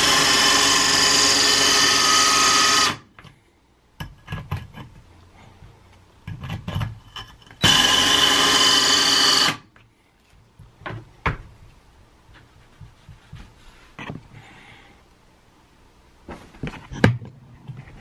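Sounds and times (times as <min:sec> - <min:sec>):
drill cutting into stone: 0:00.0 - 0:03.1, 0:07.6 - 0:09.6.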